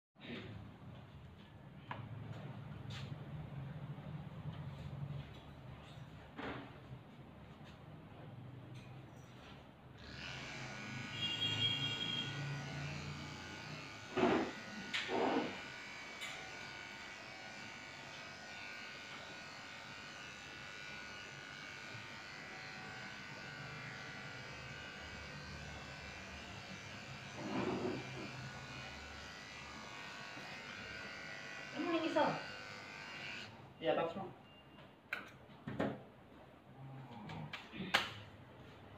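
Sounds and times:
electric clippers buzzing: 0:10.0 - 0:33.6.

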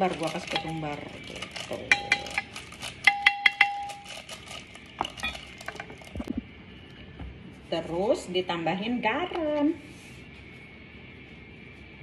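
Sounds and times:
metal spoon clinking on glass dish: 0:01.8 - 0:04.3.

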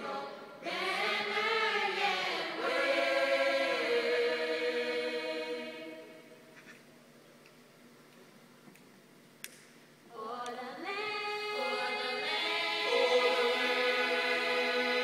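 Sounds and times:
a cappella voices singing in harmony: 0:00.0 - 0:06.4, 0:10.1 - 0:15.0.

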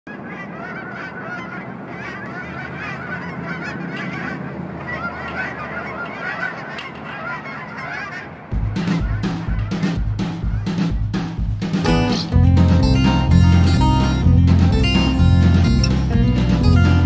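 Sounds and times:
geese honking: 0:00.1 - 0:11.1.

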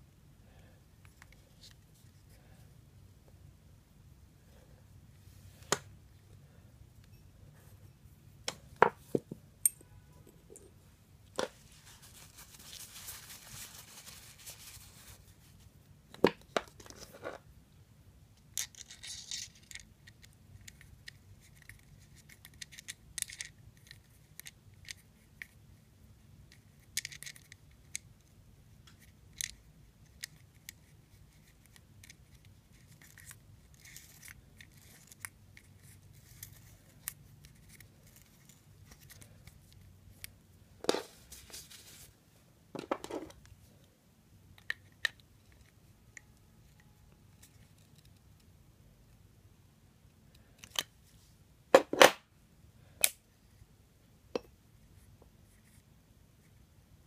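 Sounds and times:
soft rubbing: 0:10.4 - 0:15.8, 0:40.9 - 0:42.4
metal and plastic parts clicking: 0:18.5 - 0:25.6, 0:26.5 - 0:28.1.

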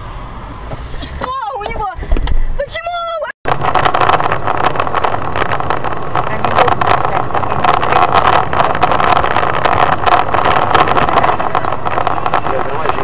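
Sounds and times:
car engine and tyre noise: 0:00.0 - 0:13.0
small ticks and rattles: 0:03.5 - 0:13.0.

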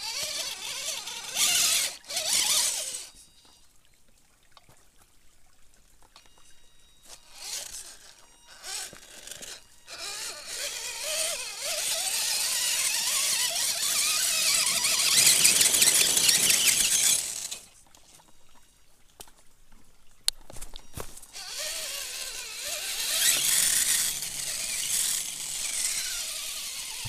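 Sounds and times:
toy car motor whining: 0:00.0 - 0:03.6, 0:06.9 - 0:17.8, 0:21.3 - 0:27.0.

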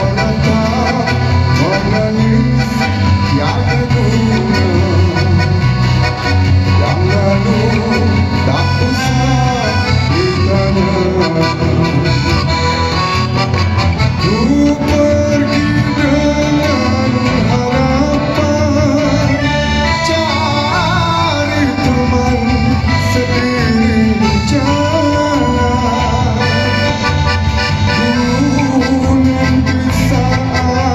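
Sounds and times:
gliding accordion-like melody: 0:00.0 - 0:30.9
live band playing: 0:00.0 - 0:30.9
steady bass line: 0:00.0 - 0:30.9.

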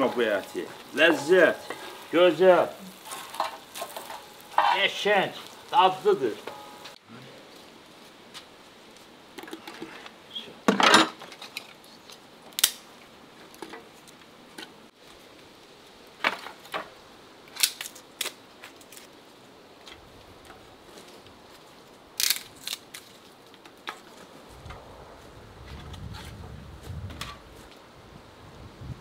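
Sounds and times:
twigs snapping and clattering on metal: 0:00.0 - 0:07.0, 0:10.7 - 0:14.8, 0:17.5 - 0:19.2, 0:19.8 - 0:24.3.

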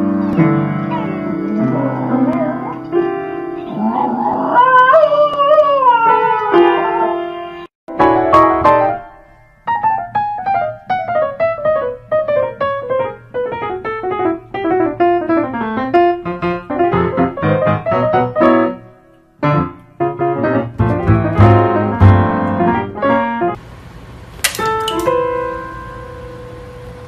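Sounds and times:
piano notes: 0:00.0 - 0:23.6, 0:24.6 - 0:27.0
dog howling: 0:03.7 - 0:07.3.

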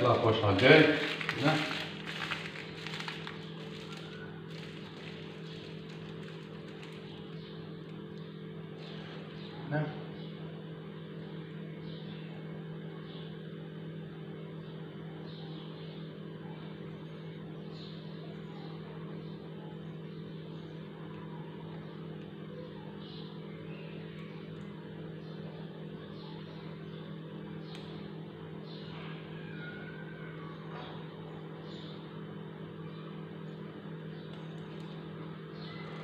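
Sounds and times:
kitchen appliance humming: 0:00.0 - 0:10.0.

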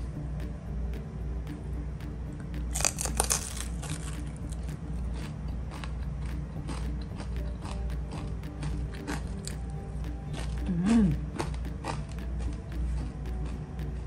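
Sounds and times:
low steady beat: 0:00.0 - 0:14.0
crispy pork skin crunching: 0:02.7 - 0:09.6.

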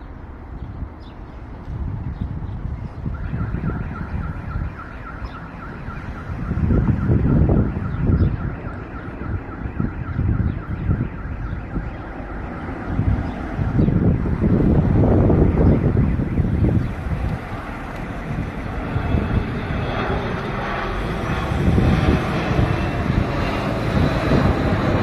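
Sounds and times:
jet airliner flying overhead: 0:00.0 - 0:25.0
wind on microphone: 0:00.0 - 0:25.0
electronic alarm beeping rapidly: 0:03.1 - 0:16.9.

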